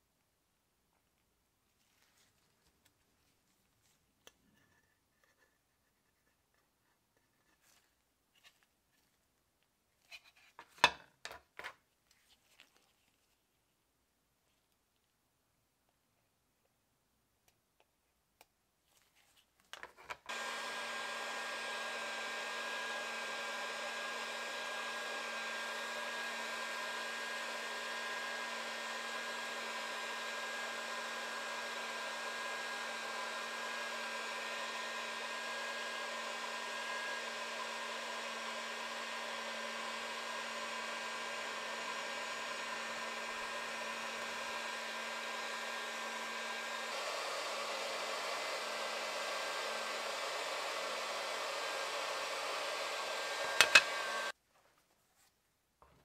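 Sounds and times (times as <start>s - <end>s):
electric blower motor whirring: 20.3s - 54.4s.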